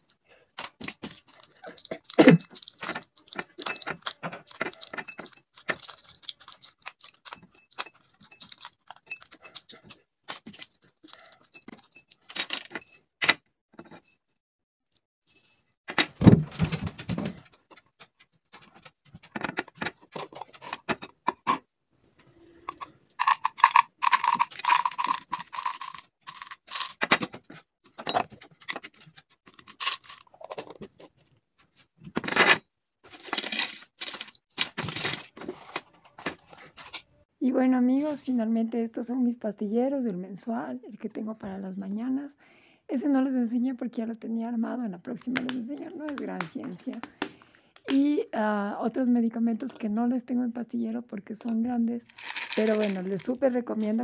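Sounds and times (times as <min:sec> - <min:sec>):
foil blister packs crinkling: 0:00.0 - 0:09.1, 0:23.2 - 0:27.0, 0:33.1 - 0:36.0, 0:52.1 - 0:53.1
capsules rattling in containers: 0:00.0 - 0:13.0, 0:18.6 - 0:21.6, 0:22.6 - 0:31.1, 0:32.1 - 0:37.0, 0:52.0 - 0:54.0.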